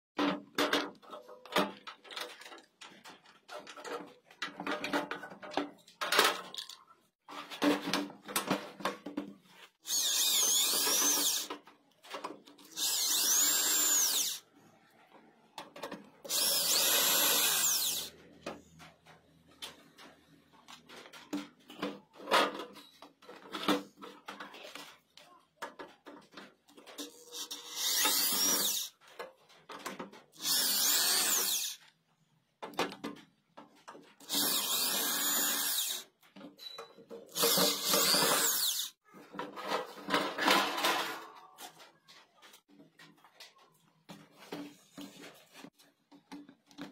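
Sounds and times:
power drill whining: 9.8s - 11.5s, 12.7s - 14.4s, 16.3s - 18.1s, 27.4s - 28.9s, 30.4s - 31.8s, 34.2s - 36.0s, 37.3s - 39.0s.

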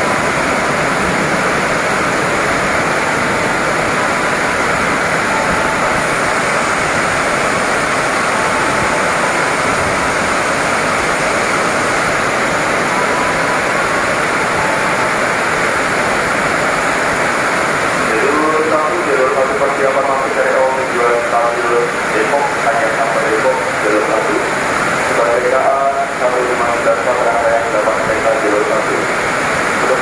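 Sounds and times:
heavy rain pouring: 0.0s - 30.0s.

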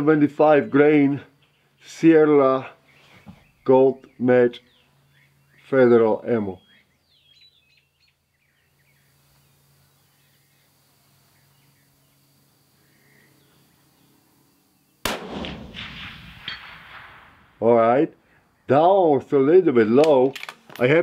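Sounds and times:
rifle shot with echo: 15.0s - 17.6s.

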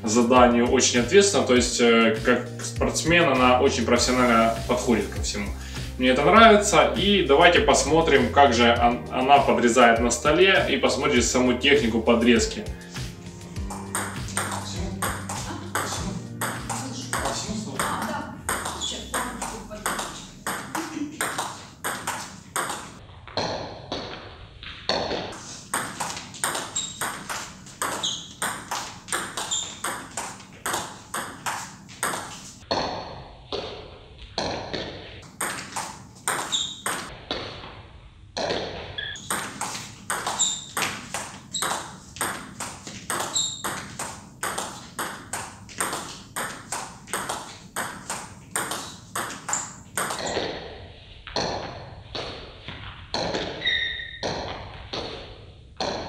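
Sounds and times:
table tennis ball hitting bats: 9.2s - 37.7s, 38.4s - 56.0s
ball bouncing on table: 13.6s - 24.2s, 24.9s - 33.8s, 34.4s - 37.4s, 38.4s - 50.6s, 51.3s - 55.2s.

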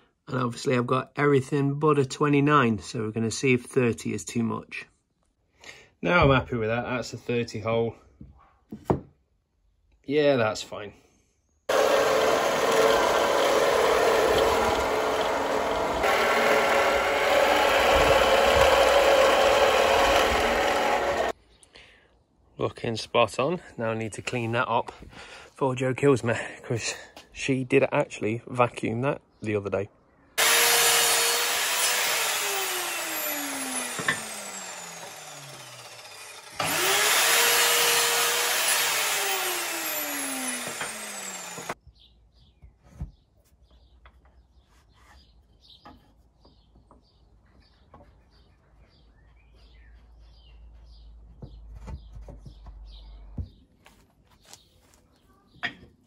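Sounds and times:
mitre saw motor whining: 11.7s - 21.4s, 30.4s - 41.8s.

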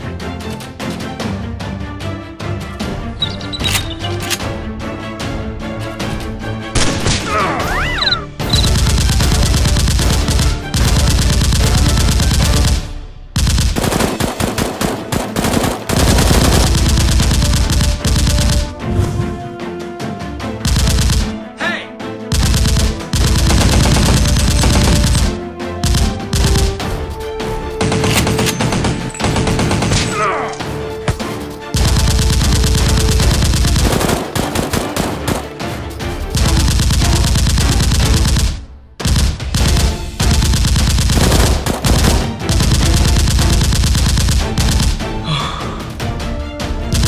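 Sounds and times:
background music: 0.0s - 47.0s
machine gun bursts: 8.5s - 12.8s, 13.4s - 18.7s, 22.3s - 26.8s, 31.8s - 35.5s, 36.4s - 45.0s.

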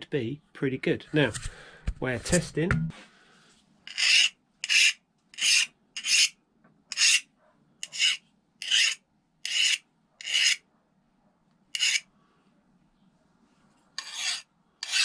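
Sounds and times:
file scraping metal blade: 3.9s - 10.6s, 11.7s - 12.1s, 14.0s - 15.0s.

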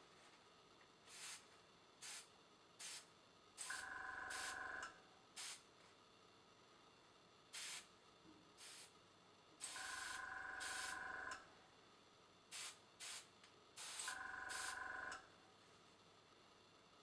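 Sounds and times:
airbrush spraying hiss: 1.1s - 4.6s, 5.4s - 5.6s, 7.6s - 7.9s, 8.6s - 8.9s, 9.6s - 11.0s, 12.5s - 14.8s.

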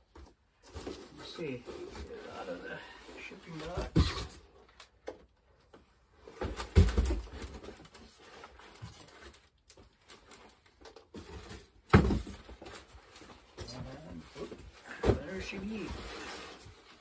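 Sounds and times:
cardboard scraping and rustling: 10.2s - 17.0s
cardboard box thumping down: 11.9s - 12.4s.

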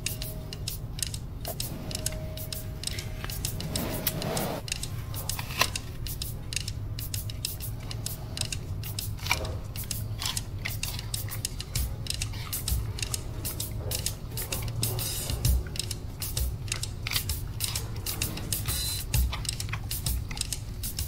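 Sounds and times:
steady low hum: 0.0s - 21.0s
animal crunching apple: 3.0s - 21.0s.

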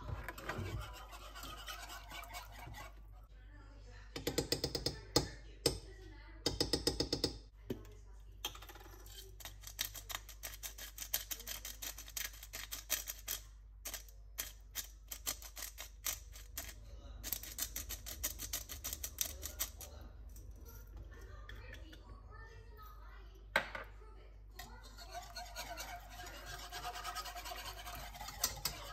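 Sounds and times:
pepper grinder crunching: 9.3s - 19.9s.

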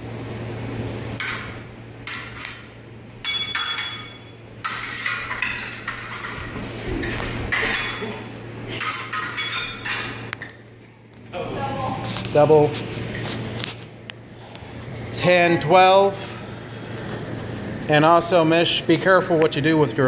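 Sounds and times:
fencing blades clashing: 1.2s - 10.6s.

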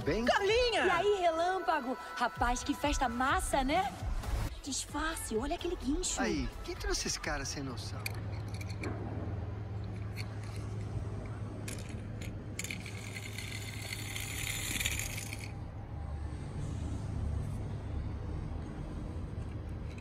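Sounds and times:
toy cars clicking and rattling: 7.8s - 8.9s, 9.9s - 15.7s, 19.4s - 20.0s.

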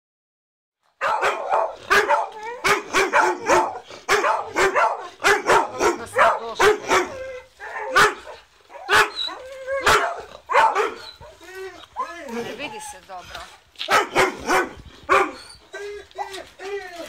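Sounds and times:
dogs barking: 1.0s - 11.5s, 13.4s - 15.5s.

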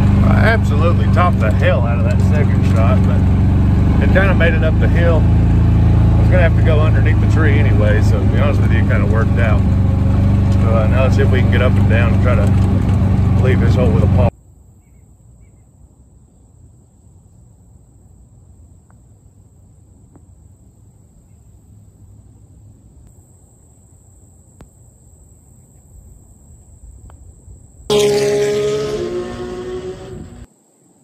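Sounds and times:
loud multi-tone droning: 0.0s - 14.3s, 27.9s - 30.5s.

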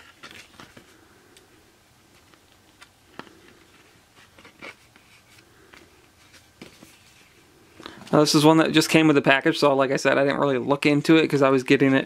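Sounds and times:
paper pages turning: 0.0s - 0.9s, 2.1s - 7.4s.

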